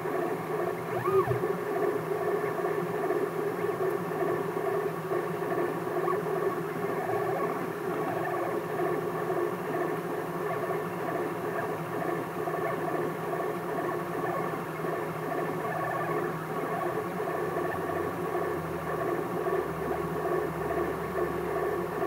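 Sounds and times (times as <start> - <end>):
three d printer motors whirring: 0.0 - 22.0.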